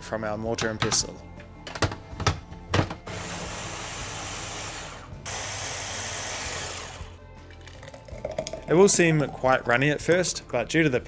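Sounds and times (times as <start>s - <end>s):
blender motor running: 3.1s - 7.2s.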